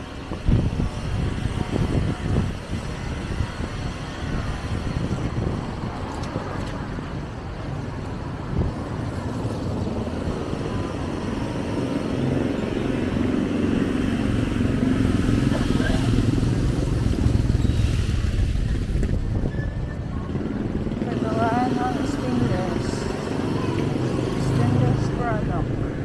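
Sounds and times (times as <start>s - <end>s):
vehicle engines running: 0.0s - 26.0s
engine approaching: 8.6s - 26.0s.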